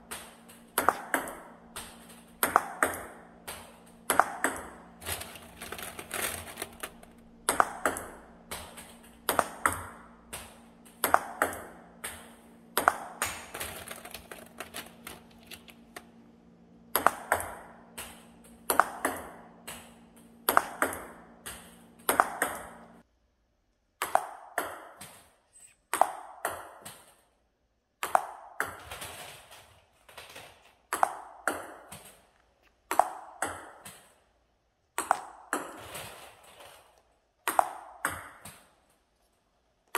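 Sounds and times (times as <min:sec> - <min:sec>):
low steady hum: 0:00.0 - 0:24.0
table tennis ball clicking: 0:00.1 - 0:05.9, 0:06.5 - 0:16.2, 0:37.4 - 0:38.7.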